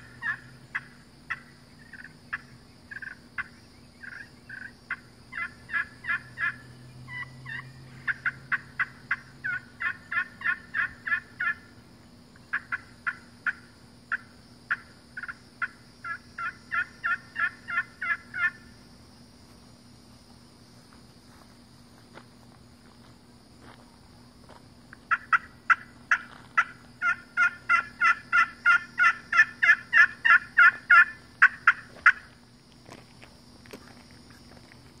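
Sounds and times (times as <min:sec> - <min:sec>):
turkey call yelps: 0:00.0 - 0:11.7, 0:12.5 - 0:18.6, 0:25.1 - 0:32.3.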